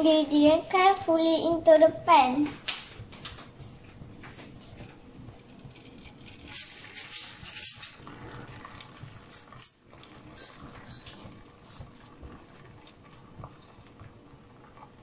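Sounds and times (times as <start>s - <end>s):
egg sizzling in frying pan: 3.9s - 15.0s.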